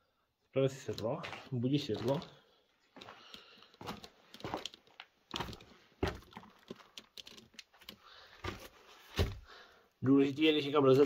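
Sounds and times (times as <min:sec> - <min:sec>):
footsteps on brick rubble: 0:00.8 - 0:09.6.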